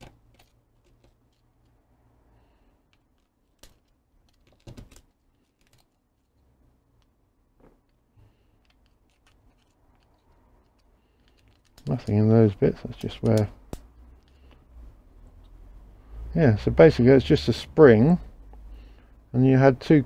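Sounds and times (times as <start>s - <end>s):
screwdriver clicking and scraping: 0.0s - 1.8s, 8.6s - 12.2s.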